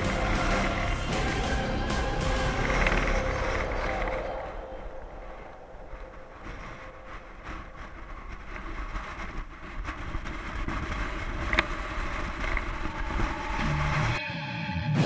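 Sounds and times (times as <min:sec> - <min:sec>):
bike tyres rumbling on road: 0:00.0 - 0:14.2
wind buffeting microphone: 0:00.0 - 0:14.2.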